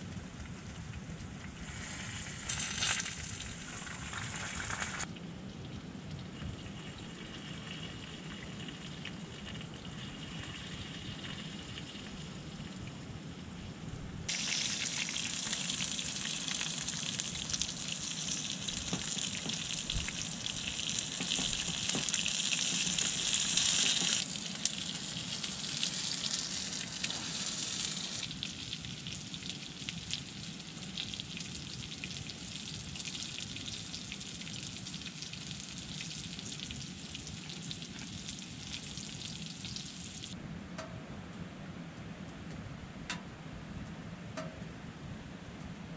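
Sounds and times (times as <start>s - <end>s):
vegetables sizzling in a tray: 14.3s - 28.4s.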